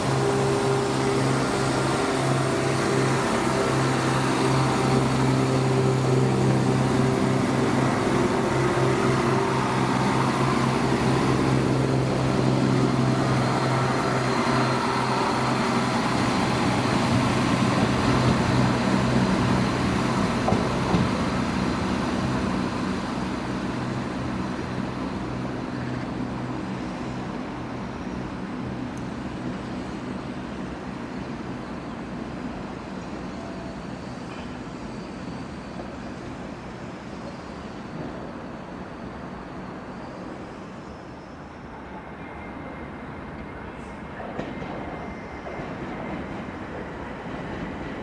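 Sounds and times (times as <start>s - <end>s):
diesel engine drone: 0.0s - 37.6s
wheel and rail rumble: 0.0s - 48.0s.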